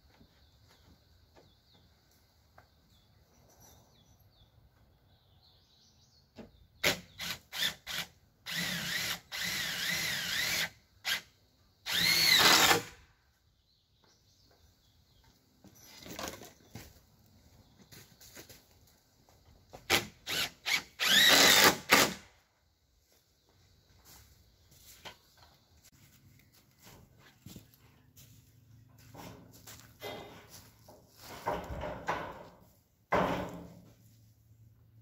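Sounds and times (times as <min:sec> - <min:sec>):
cordless drill driving screws: 0:06.8 - 0:11.3, 0:11.9 - 0:13.0, 0:19.9 - 0:22.2.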